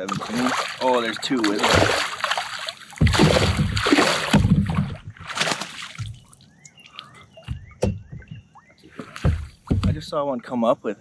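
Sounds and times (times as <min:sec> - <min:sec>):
water splashing and sloshing: 0:00.0 - 0:10.6
sharp knocks: 0:03.0 - 0:05.2, 0:07.4 - 0:08.4, 0:09.2 - 0:10.2
bird falling chirps: 0:06.1 - 0:08.8.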